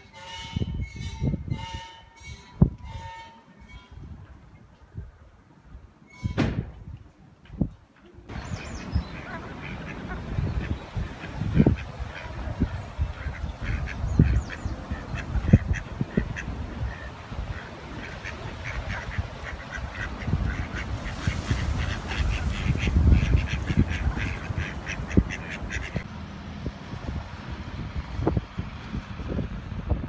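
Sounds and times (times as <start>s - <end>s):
ducks quacking: 8.3s - 26.1s.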